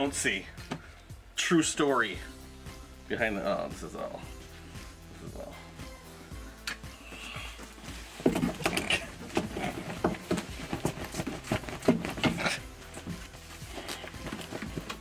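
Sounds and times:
cloth rustling and flapping: 0:07.7 - 0:15.0
soft thumps: 0:07.9 - 0:13.3.

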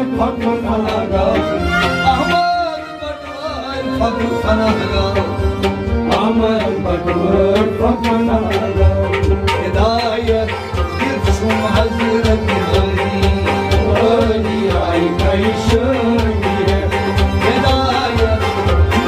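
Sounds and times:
person singing: 0:00.0 - 0:19.0
plucked string instrument: 0:00.0 - 0:19.0
hand drum beating: 0:04.0 - 0:19.0.

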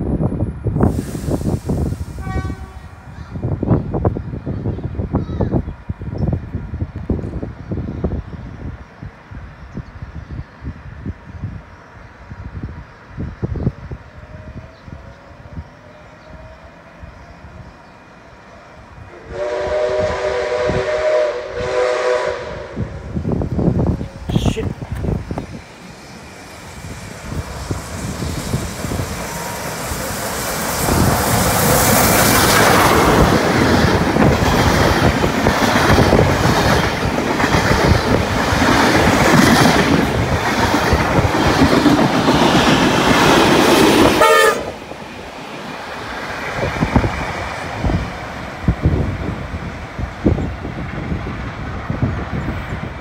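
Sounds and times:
steam train rushing past: 0:00.1 - 0:09.6, 0:10.7 - 0:53.0
clickety-clack of wheels on rails: 0:23.4 - 0:25.6, 0:27.3 - 0:53.0.

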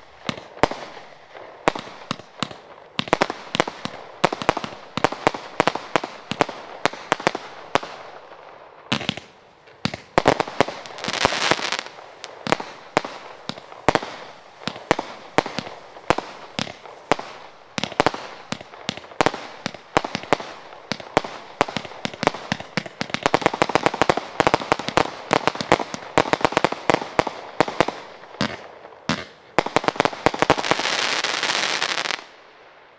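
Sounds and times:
fireworks shots and bursts: 0:00.0 - 0:32.6
dense fireworks crackling: 0:00.0 - 0:32.9.

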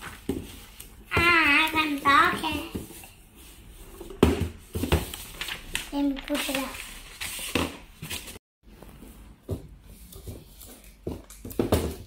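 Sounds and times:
paper rustling: 0:04.7 - 0:08.4.

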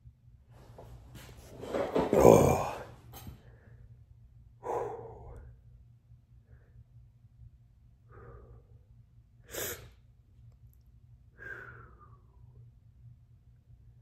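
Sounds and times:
man breathing heavily: 0:04.6 - 0:05.6, 0:08.0 - 0:10.0, 0:11.3 - 0:12.6.

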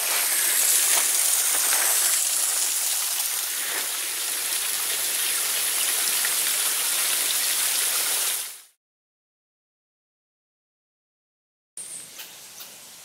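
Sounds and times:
waterfall rushing: 0:00.0 - 0:08.6.

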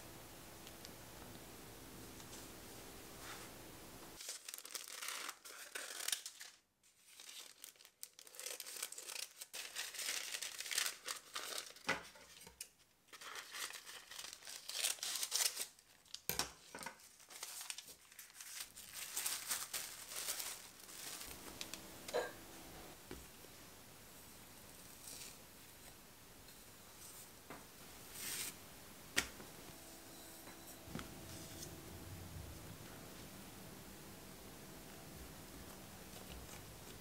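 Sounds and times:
plastic wrap and paper crinkling: 0:04.2 - 0:22.4, 0:35.5 - 0:37.0.

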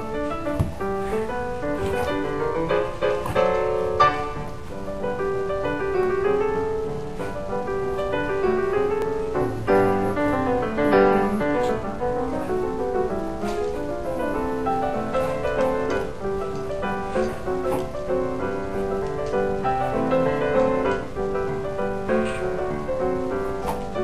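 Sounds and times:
piano playing flowing melody: 0:00.0 - 0:24.0.

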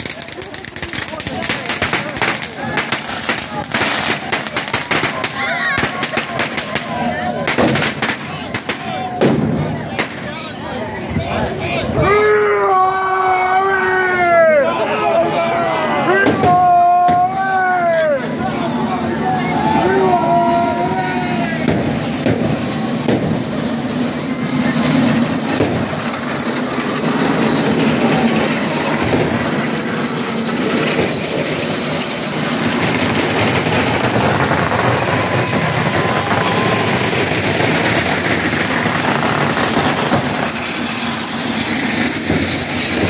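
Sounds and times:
scattered voices: 0:00.0 - 0:43.0
street crowd din: 0:00.0 - 0:43.0
heavy rain on street: 0:32.7 - 0:41.7.

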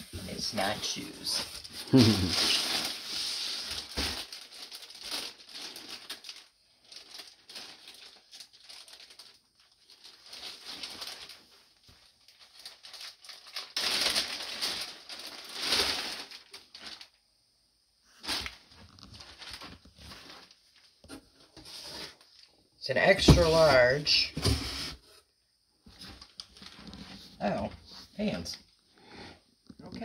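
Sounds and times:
packing paper rustling: 0:00.0 - 0:17.2, 0:18.2 - 0:22.5, 0:25.9 - 0:27.3.

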